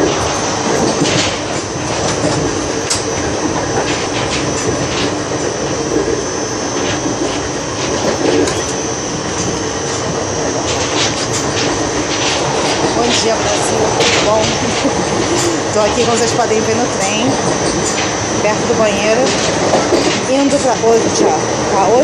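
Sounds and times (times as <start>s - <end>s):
train carriage rumbling on rails: 0.0s - 22.0s.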